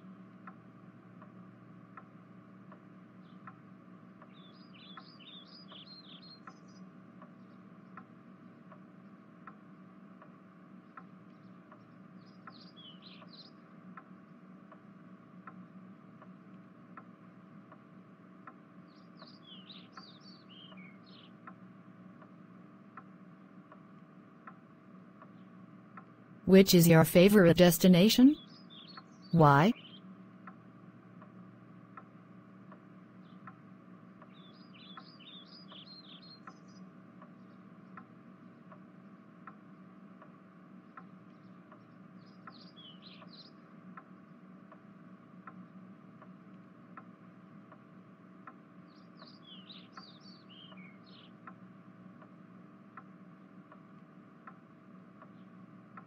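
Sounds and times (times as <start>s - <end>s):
low steady hum: 0.0s - 56.0s
bird twittering: 48.9s - 51.3s
faint regular ticking: 50.7s - 56.0s.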